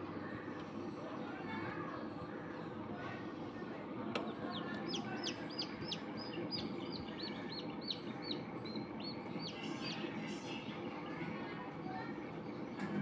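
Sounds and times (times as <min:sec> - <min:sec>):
steady low hum: 0:00.0 - 0:13.0
chick peeping: 0:04.2 - 0:10.8.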